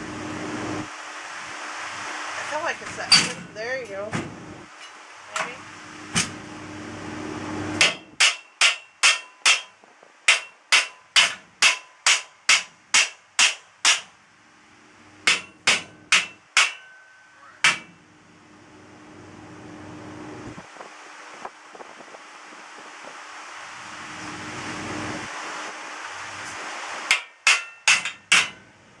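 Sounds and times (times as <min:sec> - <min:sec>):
hammer striking metal frame: 0:07.8 - 0:14.2, 0:15.2 - 0:18.0, 0:27.1 - 0:28.7.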